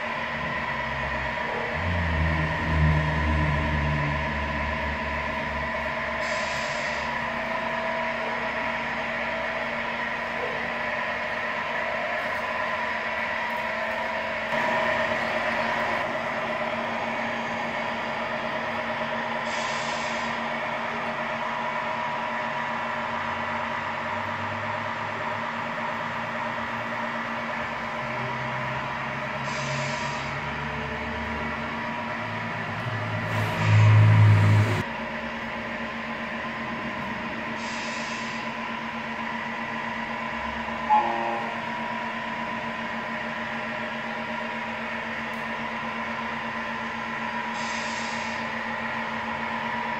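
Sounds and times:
simulated diesel engine: 0:00.0 - 0:49.9
short hisses: 0:06.2 - 0:07.1, 0:19.5 - 0:20.4, 0:29.5 - 0:30.3, 0:37.6 - 0:38.4, 0:47.6 - 0:48.4.

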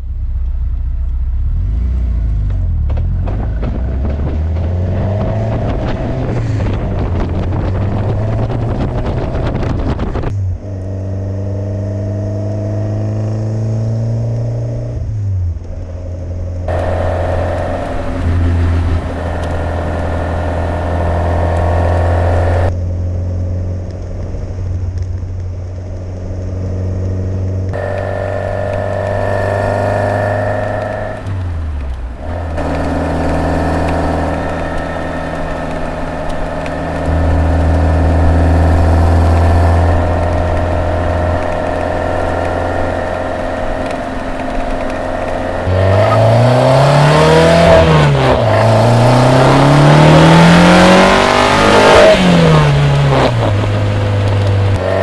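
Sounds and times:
road noise: 0:00.0 - 0:55.0
wind noise: 0:03.1 - 0:11.1
car engine running: 0:15.5 - 0:55.0.

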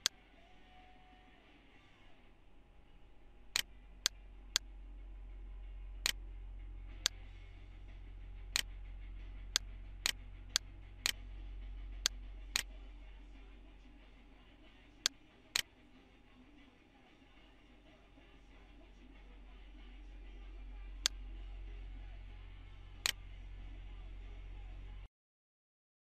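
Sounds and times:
low steady hum: 0:00.0 - 0:25.1.

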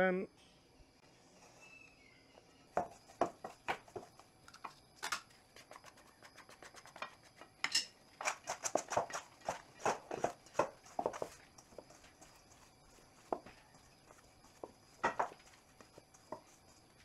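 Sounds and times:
hand working sticky dough: 0:02.7 - 0:04.8, 0:05.4 - 0:07.6, 0:08.2 - 0:17.0.

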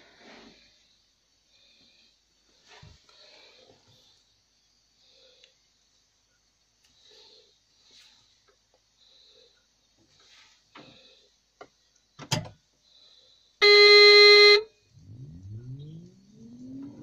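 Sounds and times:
truck horn blast: 0:13.6 - 0:15.4.

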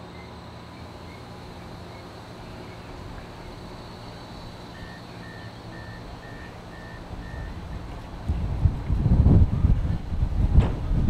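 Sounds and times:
tram warning beeps: 0:00.0 - 0:08.0
tram motors humming: 0:00.0 - 0:11.0.

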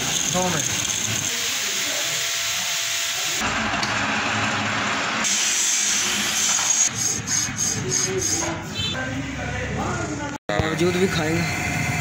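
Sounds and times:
machine tools machining metal: 0:00.0 - 0:08.4.

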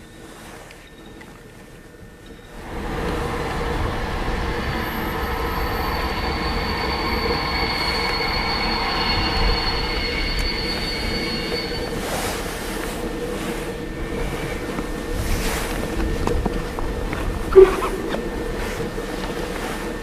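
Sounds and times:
steam locomotive hissing steam: 0:02.5 - 0:20.0
thin high hissing tone: 0:05.2 - 0:14.2.

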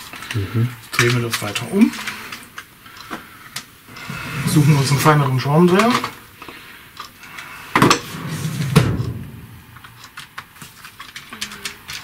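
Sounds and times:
loud knocks: 0:08.6 - 0:09.8.

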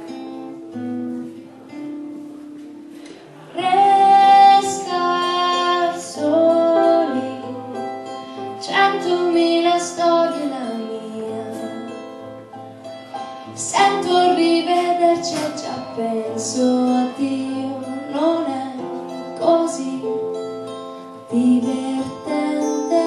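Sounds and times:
keyboard and guitar: 0:00.0 - 0:23.0
woman singing: 0:03.5 - 0:12.3, 0:13.4 - 0:20.4, 0:21.2 - 0:23.0.

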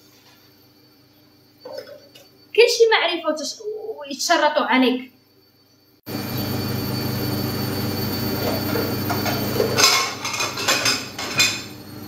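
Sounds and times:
steady hum: 0:00.0 - 0:12.0
dishes and cutlery clattering: 0:08.5 - 0:11.7.

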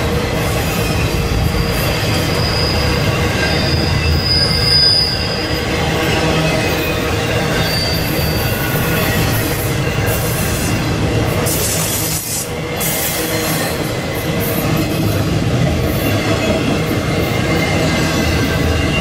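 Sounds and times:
train wheels rumbling on rail: 0:00.0 - 0:19.0
high wheel squeal: 0:00.6 - 0:13.8.

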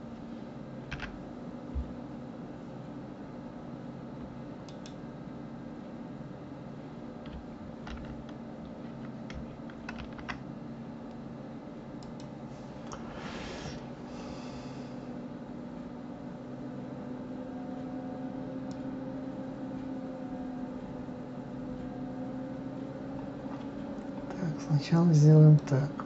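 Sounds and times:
computer hum: 0:00.0 - 0:26.0
soft breath: 0:12.5 - 0:15.2.

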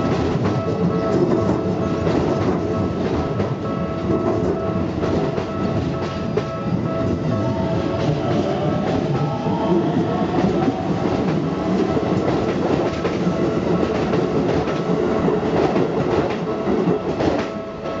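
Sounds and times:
crossing warning bell ringing: 0:00.0 - 0:12.6
train wheels clacking: 0:00.0 - 0:18.0.

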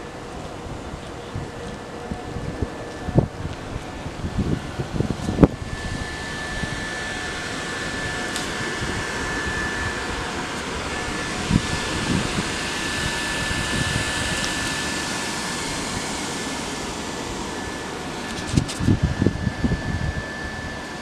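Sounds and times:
electric blower whining: 0:00.0 - 0:21.0.

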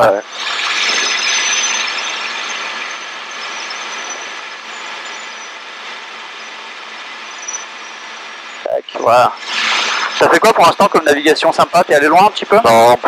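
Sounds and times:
helicopter cabin hiss: 0:07.7 - 0:13.0.

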